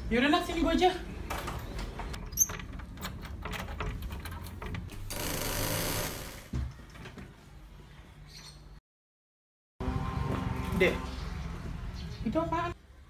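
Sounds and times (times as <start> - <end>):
door handle and latch rattling: 2.2 - 5.1.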